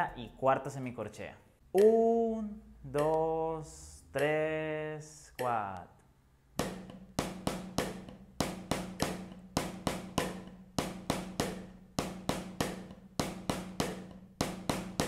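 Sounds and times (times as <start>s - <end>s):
drumsticks striking practice pad: 1.8s - 2.2s, 2.9s - 3.5s, 4.1s - 4.7s, 5.3s - 5.7s, 6.6s - 15.0s.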